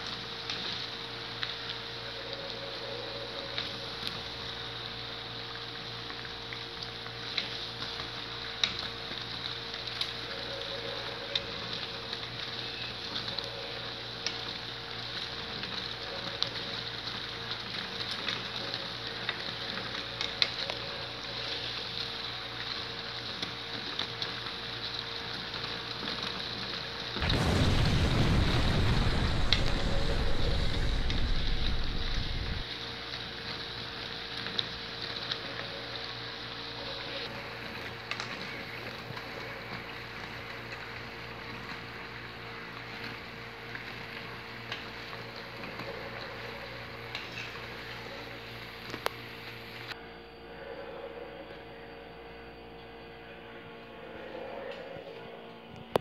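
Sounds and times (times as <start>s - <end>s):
dough deep-frying in hot oil: 0.0s - 50.0s
low rushing noise: 27.2s - 32.6s
sharp pops and crackles: 27.2s - 32.6s.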